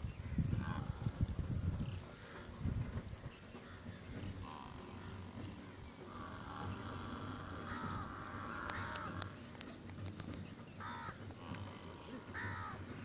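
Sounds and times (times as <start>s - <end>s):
crows cawing: 6.1s - 9.4s, 10.8s - 12.9s.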